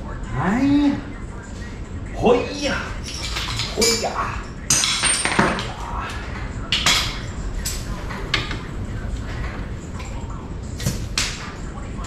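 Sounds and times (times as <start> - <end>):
steady low hum: 0.0 - 12.0
metal tools clanking: 2.6 - 8.6.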